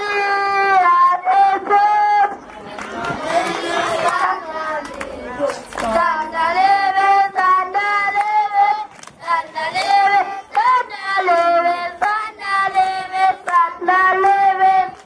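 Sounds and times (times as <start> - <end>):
young children singing: 0.0 - 15.0.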